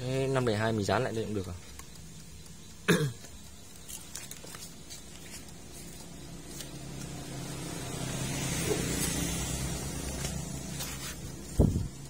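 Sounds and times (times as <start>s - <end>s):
faint clicks and taps on wires: 0.0s - 7.2s.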